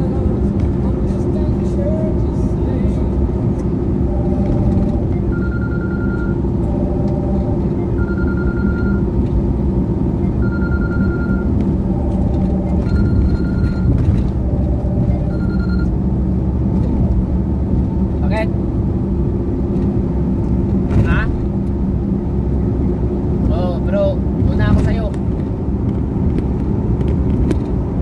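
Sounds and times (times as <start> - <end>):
vehicle driving rumble: 0.0 - 28.0
repeating electronic tone: 4.0 - 9.2, 10.2 - 16.0.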